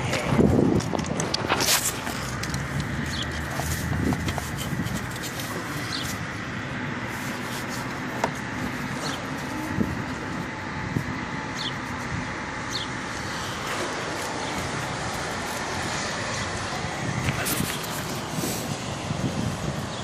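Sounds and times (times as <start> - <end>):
traffic noise: 0.0 - 20.0.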